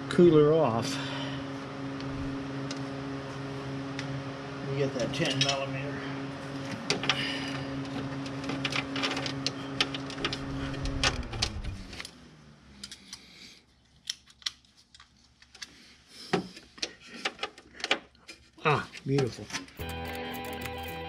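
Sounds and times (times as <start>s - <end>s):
machine hum: 0.0s - 13.6s, 19.7s - 21.0s.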